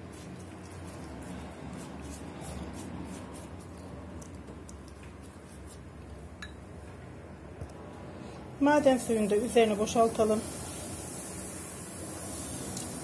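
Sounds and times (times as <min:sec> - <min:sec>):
pastry brush dabbing dough: 0:00.0 - 0:06.3.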